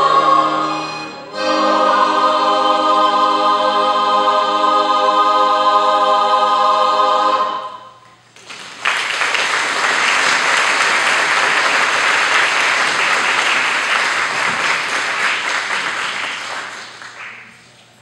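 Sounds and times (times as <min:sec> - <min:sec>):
audience applauding: 0:08.4 - 0:17.8.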